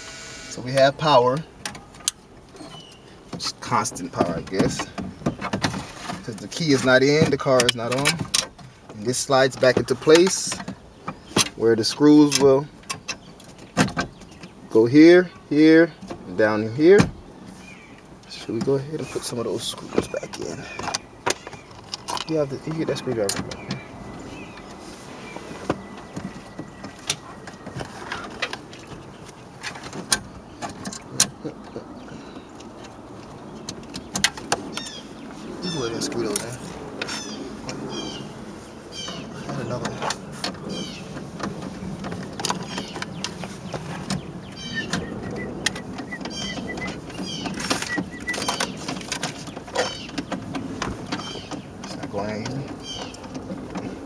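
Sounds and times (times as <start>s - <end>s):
hands handling metal radio bracket: 18.0s - 54.0s
clicks and knocks of radio fitting: 39.0s - 54.0s.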